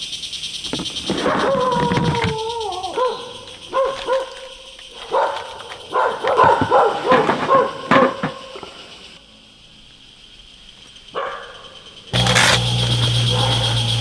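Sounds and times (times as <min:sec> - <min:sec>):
animal calling: 0:00.7 - 0:08.8.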